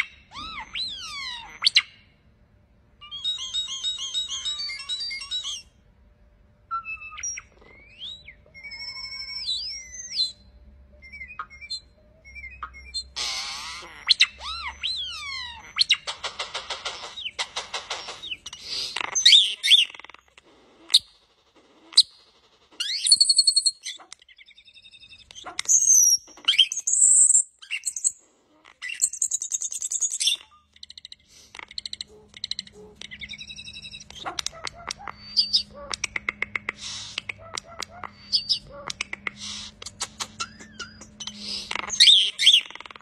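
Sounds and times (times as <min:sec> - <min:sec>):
starling singing: 0:03.0 - 0:05.8, 0:31.8 - 0:43.0.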